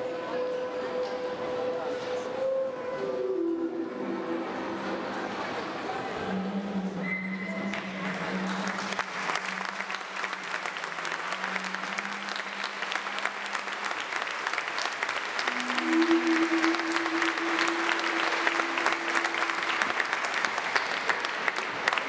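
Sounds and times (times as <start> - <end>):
audience applauding: 7.5 - 22.0
background music low notes: 15.4 - 20.2.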